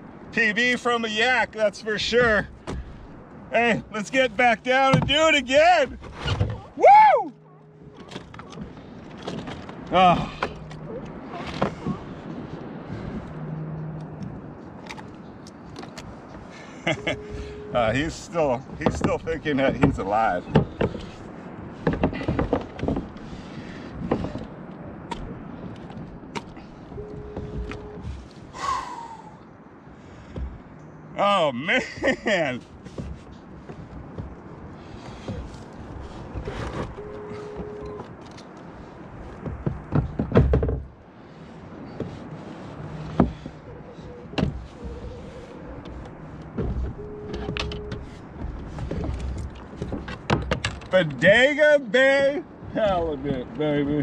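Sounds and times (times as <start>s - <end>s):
knocks and thuds on plastic kayak: 2.0s - 3.3s, 4.7s - 15.0s, 15.8s - 28.4s, 30.2s - 31.0s, 31.8s - 38.2s, 39.0s - 41.1s, 41.7s - 51.6s
brief steady tone: 16.9s - 17.9s, 27.0s - 28.0s, 37.0s - 38.1s, 47.0s - 48.0s.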